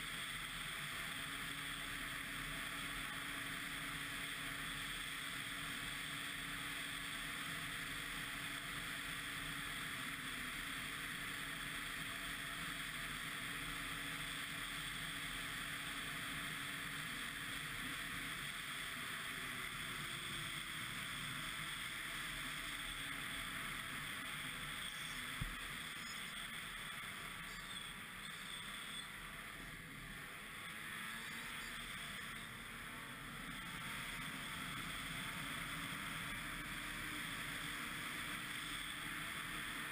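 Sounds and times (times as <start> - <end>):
snowmobile engine and track drone: 0.0 - 39.9.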